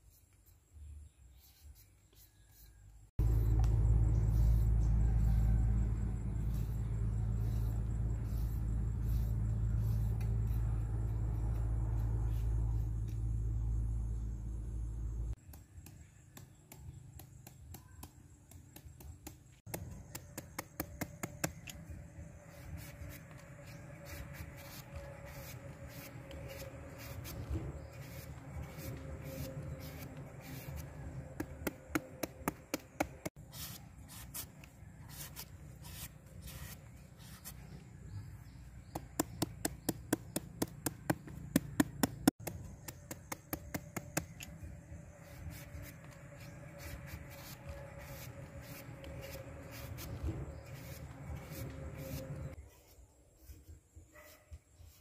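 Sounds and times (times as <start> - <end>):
low hum: 3.2 - 15.4, 21.0 - 33.4, 39.8 - 52.6
cleaver chopping vegetable: 15.4 - 21.8, 24.6 - 37.6, 38.8 - 44.6.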